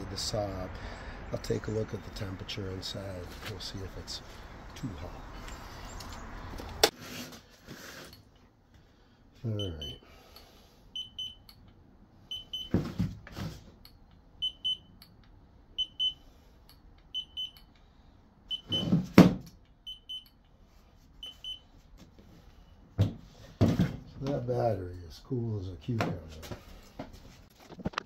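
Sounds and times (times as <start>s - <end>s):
thermometer high beeps: 9.6s - 10.0s, 11.0s - 11.5s, 14.4s - 14.9s, 17.1s - 17.6s, 18.5s - 18.9s, 19.8s - 20.4s.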